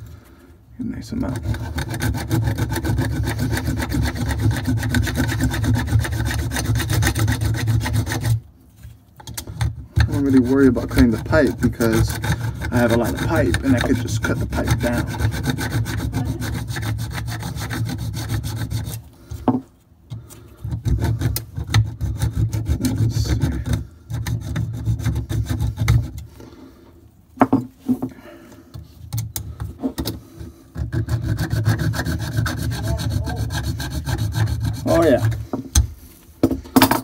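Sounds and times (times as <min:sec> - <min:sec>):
hacksaw sawing through pipe: 0:01.1 - 0:08.4, 0:09.4 - 0:19.1, 0:20.6 - 0:26.3, 0:29.8 - 0:35.9.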